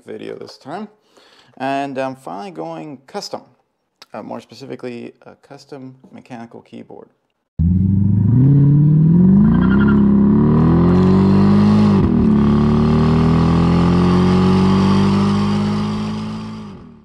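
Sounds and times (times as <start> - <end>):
car engine accelerating: 7.6 - 17.0.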